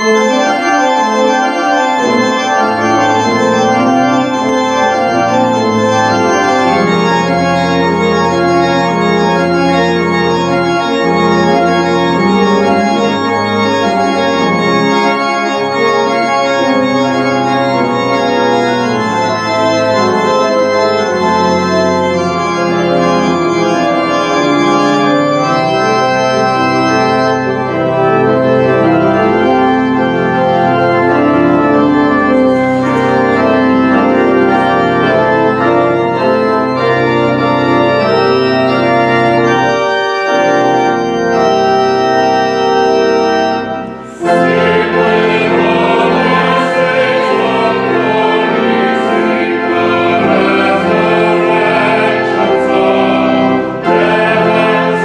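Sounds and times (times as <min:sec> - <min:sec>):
pipe organ playing a hymn: 0:00.0 - 0:55.0.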